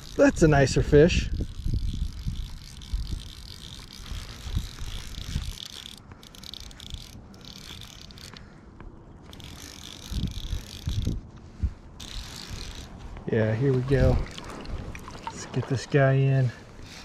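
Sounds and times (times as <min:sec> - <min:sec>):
fly reel clicking: 0:00.0 - 0:08.4, 0:09.2 - 0:11.2, 0:12.0 - 0:13.0.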